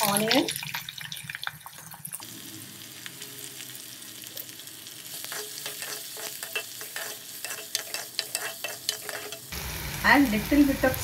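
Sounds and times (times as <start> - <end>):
onions sizzling in oil: 0.0 - 11.0
spatula scraping a pot: 5.2 - 9.5.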